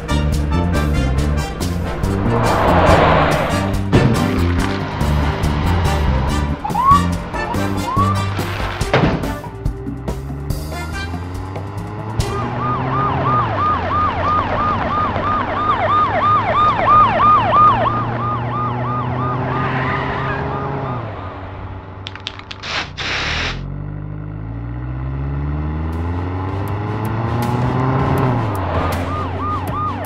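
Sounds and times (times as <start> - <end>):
car engine hum: 0.0 - 30.0
rushing noise burst: 1.6 - 4.4
police siren yelping: 12.2 - 21.0, 28.4 - 30.0.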